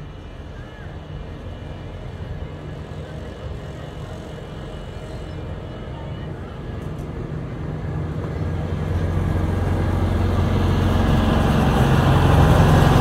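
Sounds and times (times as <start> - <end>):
miniature train engine hum: 0.0 - 13.0
train wheels on rails: 6.7 - 13.0.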